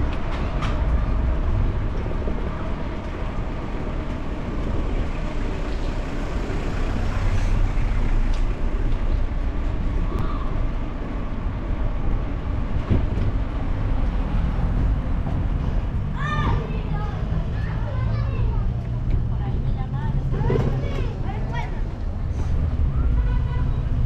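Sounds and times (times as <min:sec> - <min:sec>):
bicycle tyres rolling on pavement: 0:00.0 - 0:18.1.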